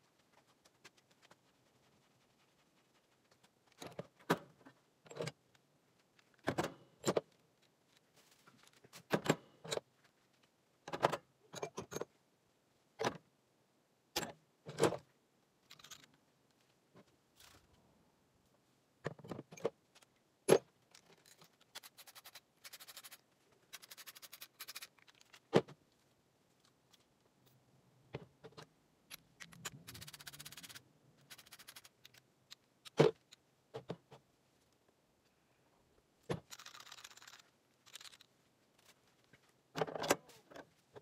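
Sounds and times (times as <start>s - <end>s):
socket ratchet clicking: 29.2s - 32.2s.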